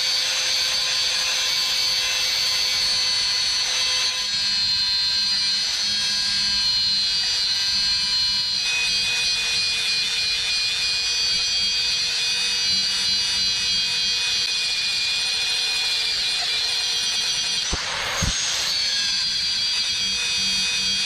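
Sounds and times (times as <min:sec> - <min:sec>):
angle grinder grinding steel rod: 0:15.3 - 0:19.3.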